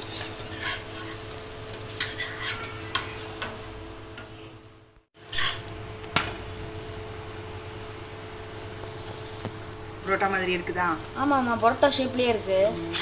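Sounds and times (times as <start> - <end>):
spatula scraping pan: 0.0 - 3.6, 5.2 - 5.7, 11.9 - 13.0.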